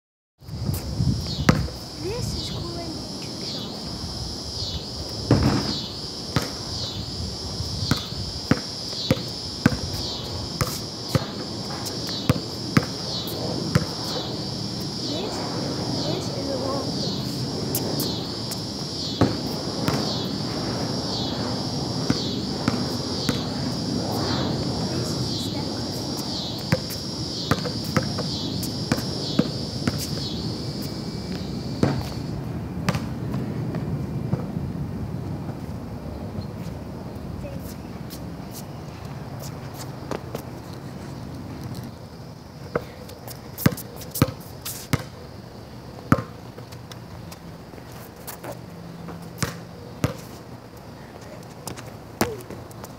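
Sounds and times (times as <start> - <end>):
steady high buzz: 0.4 - 32.9
insects chorus: 0.4 - 52.9
basketball bouncing on concrete: 1.3 - 1.8, 6.4 - 6.6, 7.9 - 10.0, 10.6 - 13.1, 13.7 - 14.2, 19.2 - 20.1, 22.1 - 23.5, 26.6 - 30.2, 32.9 - 33.1, 43.6 - 45.1, 46.1 - 47.0, 49.1 - 50.3, 51.6 - 52.6.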